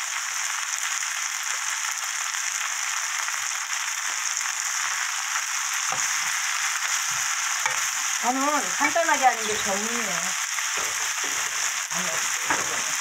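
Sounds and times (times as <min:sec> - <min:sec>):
food sizzling in oil: 0:00.0 - 0:13.0
spatula stirring pan: 0:05.9 - 0:13.0.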